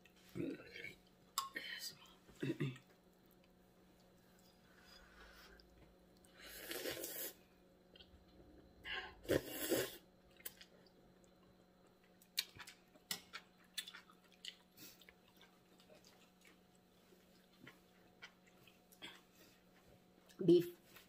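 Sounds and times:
soft chewing: 0.0 - 21.0
loud slurp: 6.5 - 7.4, 9.3 - 10.0.

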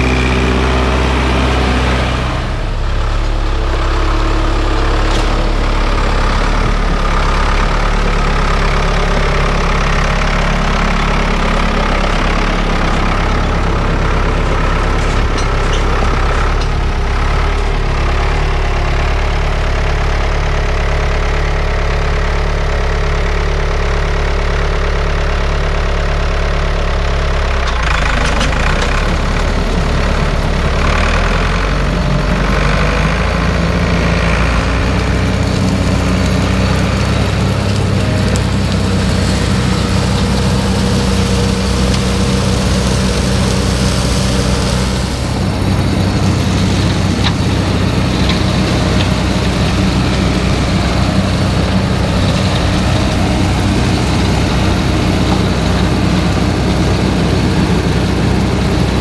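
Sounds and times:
tractor engine running under load: 0.0 - 59.0
forage harvester chopping grass: 32.6 - 59.0.

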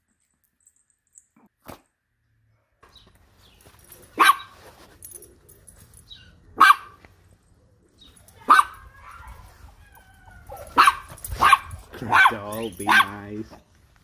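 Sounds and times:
dog barking: 4.2 - 4.5, 6.6 - 7.0, 8.4 - 9.4, 10.4 - 13.3.

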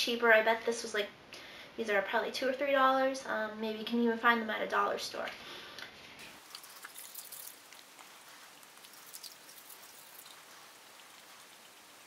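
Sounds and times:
toothbrush scratching dog's teeth: 6.4 - 11.9
dog licking and chewing: 6.4 - 12.0.

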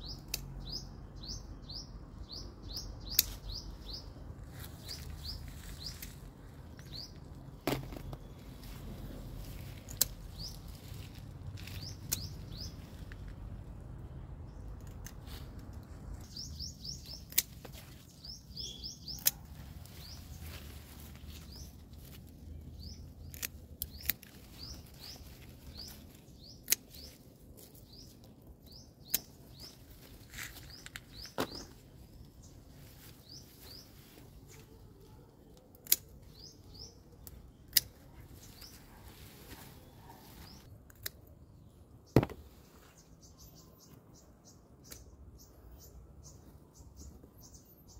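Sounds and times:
small bird chirping: 0.0 - 13.1, 16.2 - 40.7
pruning shears snipping: 3.0 - 3.6, 9.3 - 13.3, 16.8 - 22.2, 22.8 - 28.2, 29.0 - 31.7, 35.7 - 36.5.

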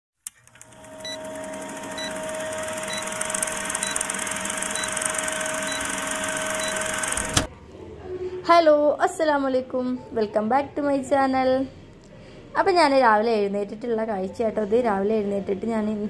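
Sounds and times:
film projector humming and crackling: 0.3 - 7.5.

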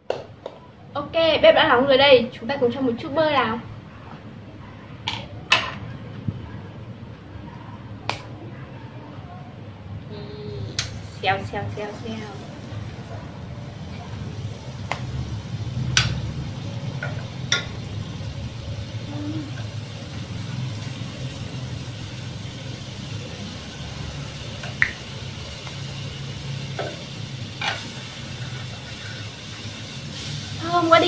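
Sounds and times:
butter sizzling in a hot pan: 10.8 - 31.0.

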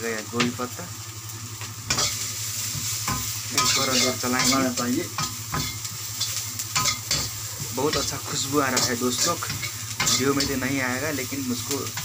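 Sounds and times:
vegetables sizzling in oil: 0.0 - 12.0.

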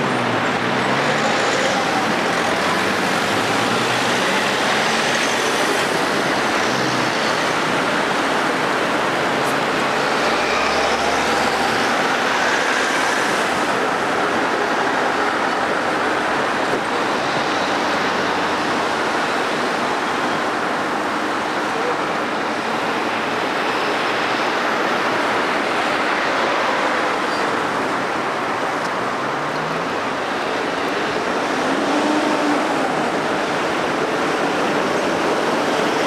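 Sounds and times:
cars driving past: 0.0 - 20.2.

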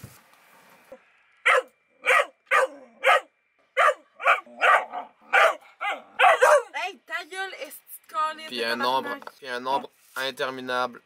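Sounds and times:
dog yelping barks: 1.4 - 6.8.

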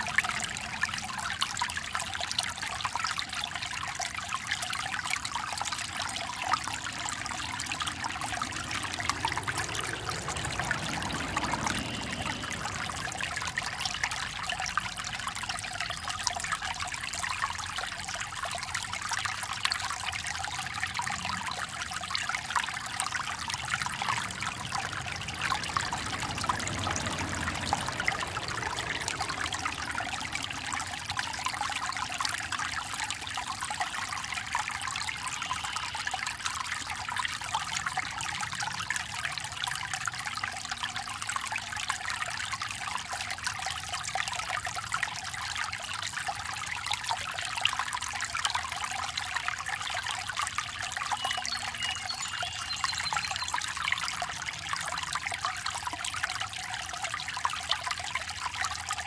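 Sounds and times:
brook trickling and splashing: 0.0 - 59.0
faint low rumble: 5.4 - 17.1, 21.0 - 33.1.

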